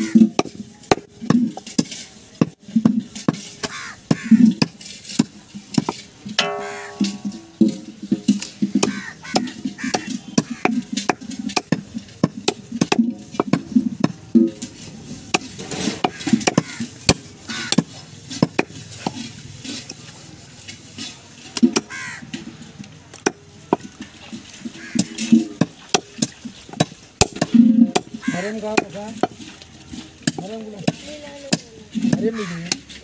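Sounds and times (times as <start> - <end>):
knife chopping meat on wooden block: 15.4 - 19.2.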